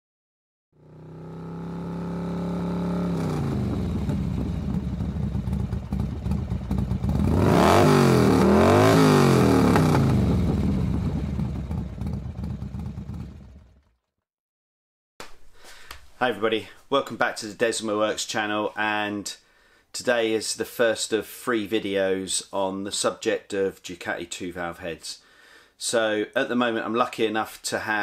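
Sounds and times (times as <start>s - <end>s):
motorcycle engine revving: 0.8s - 14.1s.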